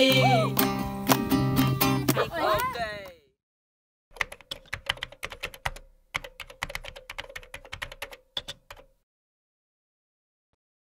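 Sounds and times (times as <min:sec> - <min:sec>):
keyboard typing clicks: 0:04.2 - 0:08.9.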